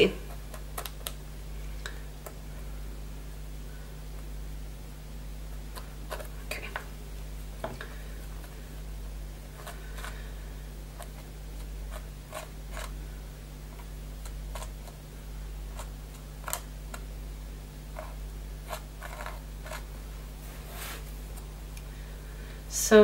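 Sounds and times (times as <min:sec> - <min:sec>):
steady low hum: 0:00.0 - 0:23.0
palette knife scraping paste: 0:18.0 - 0:19.9.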